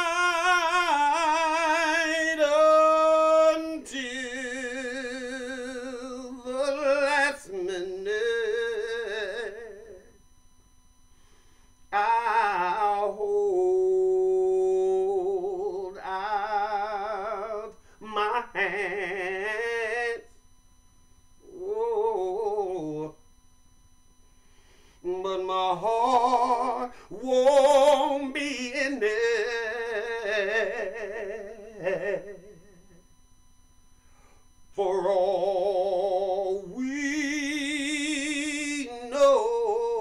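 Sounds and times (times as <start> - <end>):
man singing solo: 0.0 - 10.1, 11.9 - 20.3, 25.0 - 32.9.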